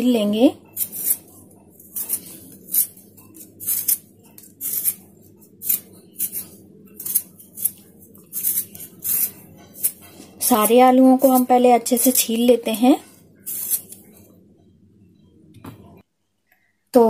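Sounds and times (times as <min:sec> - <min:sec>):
vegetable peeler scraping potato: 0:00.7 - 0:12.3, 0:13.0 - 0:14.1.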